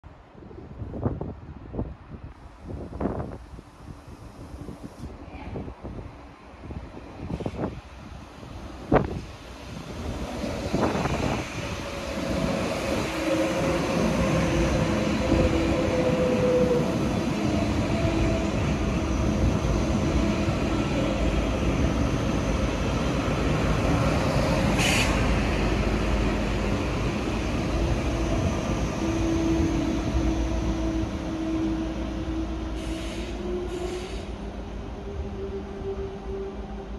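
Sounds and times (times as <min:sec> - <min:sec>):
train wheels rumbling on rails: 0:08.5 - 0:36.9.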